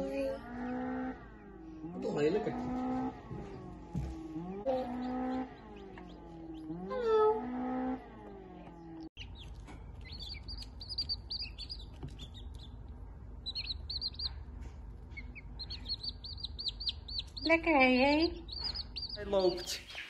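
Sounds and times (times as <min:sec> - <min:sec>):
chicks peeping: 0:00.6 - 0:07.1, 0:08.2 - 0:20.0.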